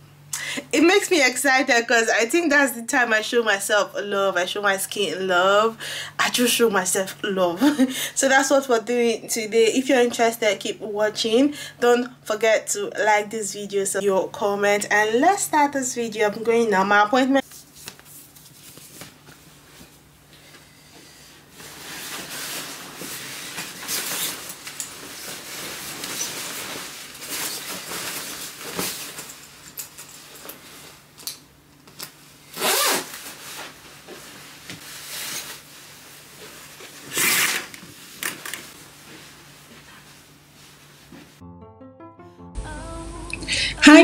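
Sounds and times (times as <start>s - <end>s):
clothing rustling: 21.4s - 41.4s
zipper pulls: 32.5s - 33.2s, 37.1s - 37.8s.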